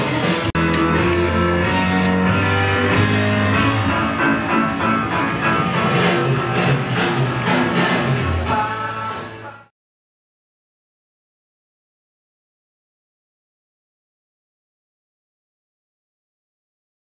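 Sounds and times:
rock music with guitar and drums: 0.0s - 9.7s.

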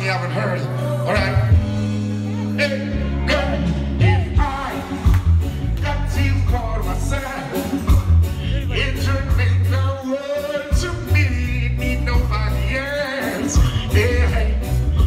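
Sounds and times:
man singing into a microphone: 0.0s - 5.1s, 5.8s - 15.0s
reggae backing track with heavy bass: 0.0s - 15.0s.

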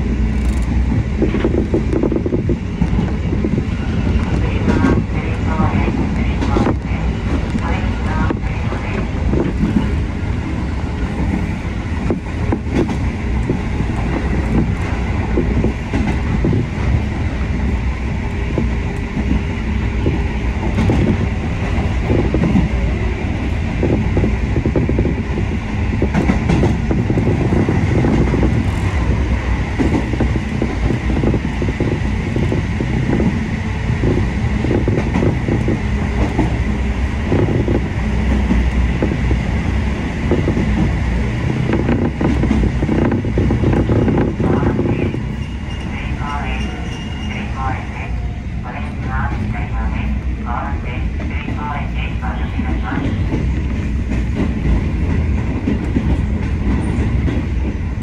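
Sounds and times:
train wheels rumbling: 0.0s - 58.0s.

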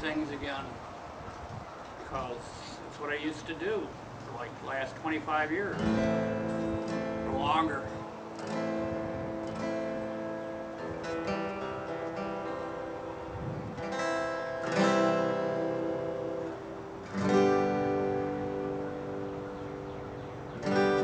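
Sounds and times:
acoustic guitar strumming: 4.7s - 21.0s.

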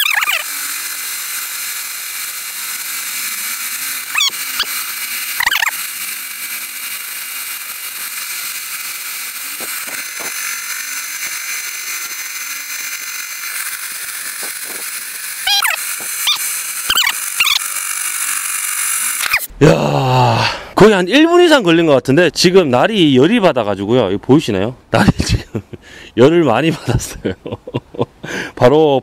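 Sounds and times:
drill bit squealing: 0.0s - 19.5s
drill grinding into tile: 0.0s - 19.5s.

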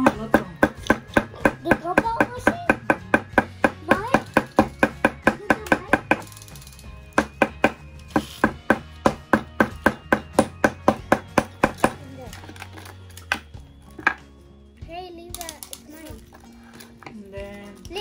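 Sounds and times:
hammer tapping nail into wood: 0.0s - 6.3s, 7.2s - 12.0s.

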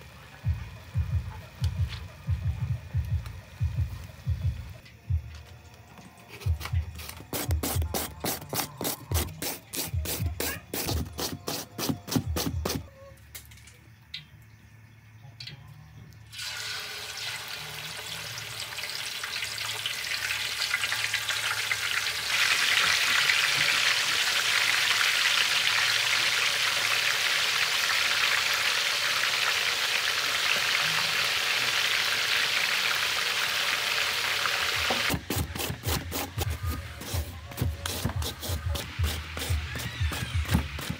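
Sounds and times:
potato scraping on grater: 6.4s - 12.8s, 35.2s - 40.9s
deep-frying sizzle in oil: 16.3s - 36.4s.

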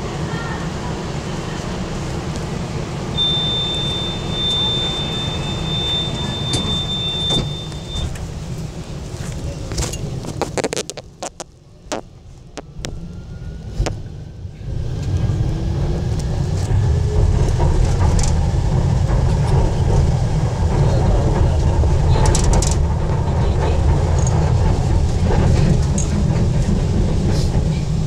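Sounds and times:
train car rumble: 0.0s - 28.0s
train motor whine: 3.2s - 8.4s.

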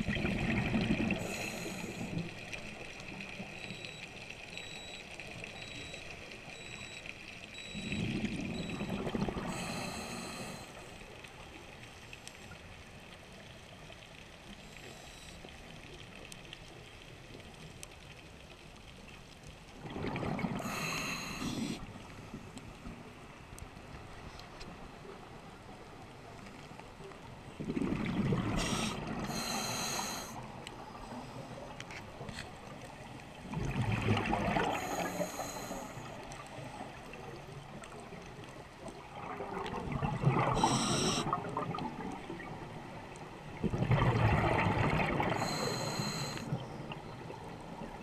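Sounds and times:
underwater exhaled bubbles gurgling: 0.0s - 4.0s, 7.6s - 11.4s, 19.7s - 22.1s, 27.4s - 31.2s, 32.8s - 48.0s
regulator hiss: 28.6s - 30.4s, 40.6s - 41.3s, 45.4s - 46.5s.

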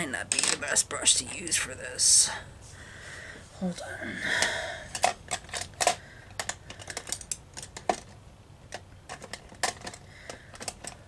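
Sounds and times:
brushes and plastic cases clicking: 4.4s - 11.0s.

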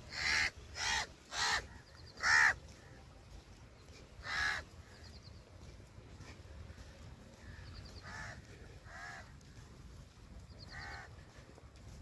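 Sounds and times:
crow cawing: 0.1s - 2.6s, 4.2s - 4.7s, 7.9s - 9.3s, 10.7s - 11.1s.

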